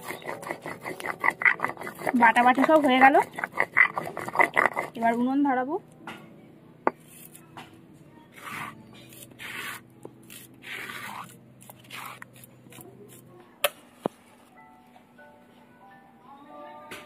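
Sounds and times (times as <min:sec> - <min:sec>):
stone pestle scraping on stone: 0:00.0 - 0:05.4, 0:06.9 - 0:07.5, 0:08.3 - 0:13.2.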